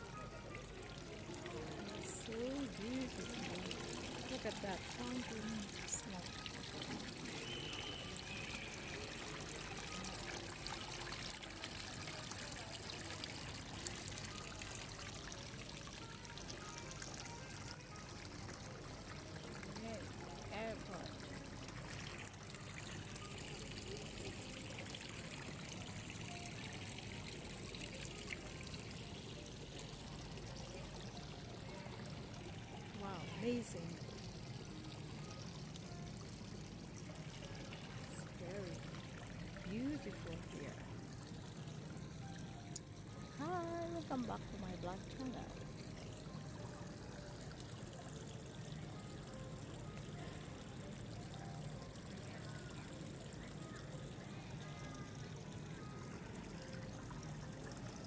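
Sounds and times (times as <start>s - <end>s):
fountain water splashing: 0.0s - 31.2s, 32.1s - 35.5s, 36.4s - 41.8s, 43.2s - 49.6s.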